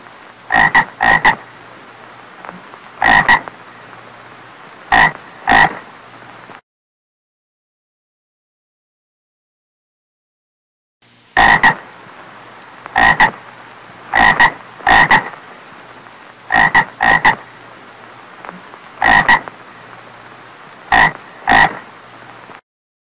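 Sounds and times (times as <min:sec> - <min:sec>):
faint steady hiss: 0:00.0 - 0:06.6, 0:11.0 - 0:22.6
frog croaking: 0:00.5 - 0:01.6, 0:02.5 - 0:03.6, 0:04.9 - 0:05.9, 0:11.4 - 0:11.9, 0:12.9 - 0:13.4, 0:14.1 - 0:15.4, 0:16.5 - 0:17.5, 0:18.5 - 0:19.6, 0:20.9 - 0:21.9.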